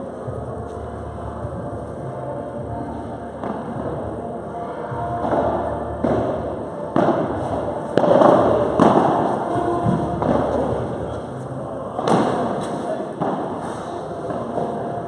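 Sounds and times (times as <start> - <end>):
ball struck by rackets: 5.2 - 10.8, 12.0 - 15.0.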